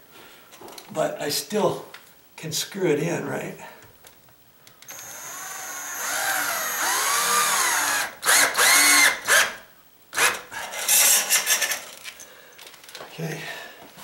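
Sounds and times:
cordless drill driving screw: 4.9 - 9.5.

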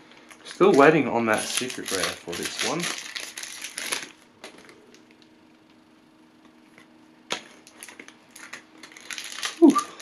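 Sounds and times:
foil wrapper crinkling: 0.4 - 5.3, 7.6 - 10.0.

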